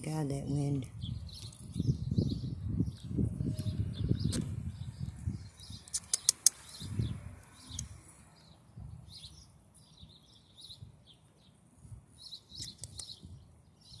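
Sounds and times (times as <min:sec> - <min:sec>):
wind rumbling on microphone: 0:00.0 - 0:11.2, 0:11.8 - 0:14.0
small birds chirping: 0:00.0 - 0:14.0
sharp clicks: 0:05.8 - 0:06.8, 0:12.6 - 0:13.2.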